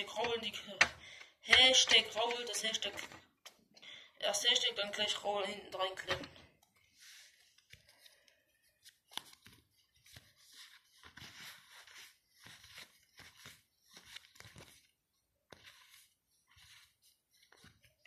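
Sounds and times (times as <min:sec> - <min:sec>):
paper stickers rustling: 0:06.7 - 0:14.9.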